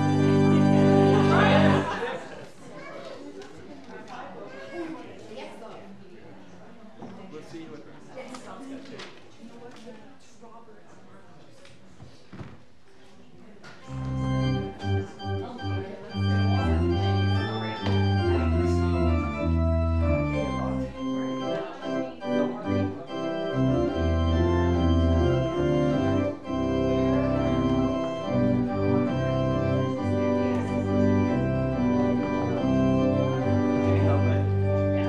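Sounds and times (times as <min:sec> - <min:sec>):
church organ playing chords: 0:00.0 - 0:02.0, 0:13.9 - 0:35.0.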